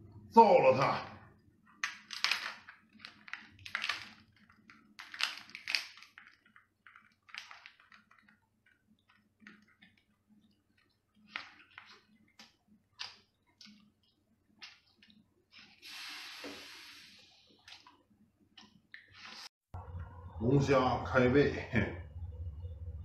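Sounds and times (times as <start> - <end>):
lobster shell cracking: 1.8 - 9.8.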